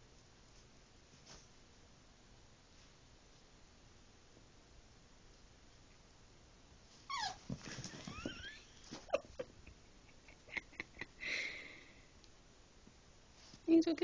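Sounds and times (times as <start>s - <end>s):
dogs scuffling: 6.9s - 9.2s
dog yipping: 7.1s - 7.5s
dog whimpering: 7.1s - 8.7s
dog whining: 7.1s - 9.2s.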